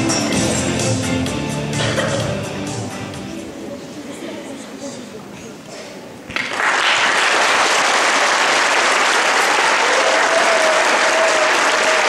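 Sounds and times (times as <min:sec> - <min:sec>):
audience applauding: 0:06.3 - 0:12.0.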